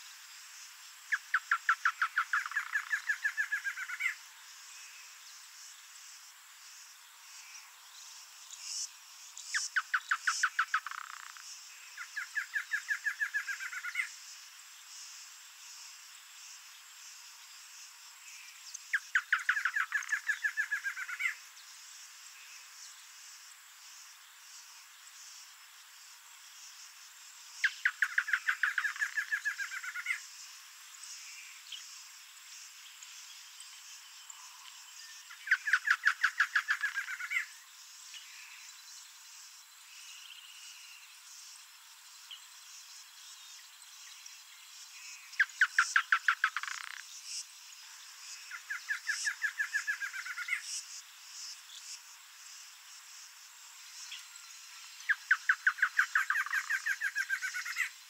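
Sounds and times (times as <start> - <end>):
insects humming: 0.0 - 58.0
bird singing: 1.1 - 4.2, 7.3 - 14.2, 18.2 - 21.8, 27.6 - 30.3, 30.9 - 39.1, 42.0 - 50.9, 53.8 - 58.0.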